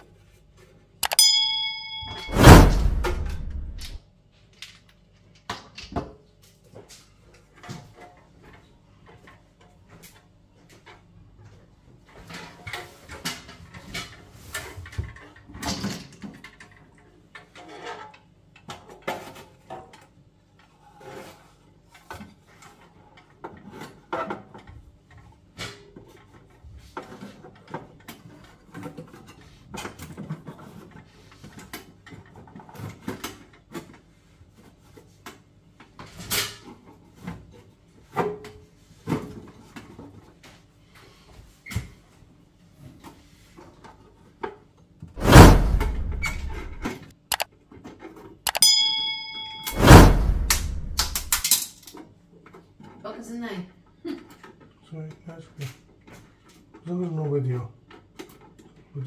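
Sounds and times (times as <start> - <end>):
metal parts clicking and scraping: 45.3 - 47.4, 48.5 - 48.7, 49.6 - 51.9.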